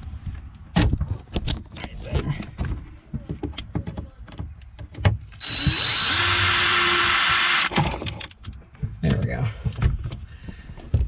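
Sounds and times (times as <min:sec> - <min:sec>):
cordless drill motor running: 0:05.4 - 0:07.7
drill bit clicks: 0:05.4 - 0:08.0.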